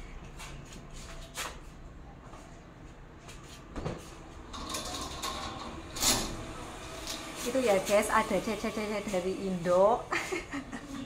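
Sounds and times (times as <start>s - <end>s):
hanger scraping along rail: 4.4s - 9.8s.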